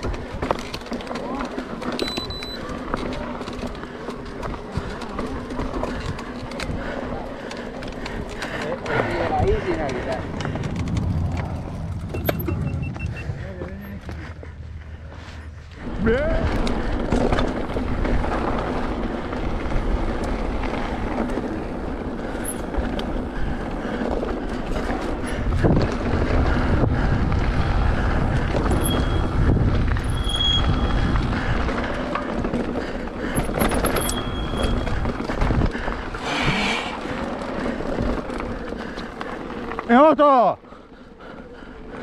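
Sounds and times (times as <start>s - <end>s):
tyre noise on dirt: 0.0s - 40.5s
wind buffeting microphone: 4.4s - 39.2s
short high squeaks: 30.0s - 31.0s.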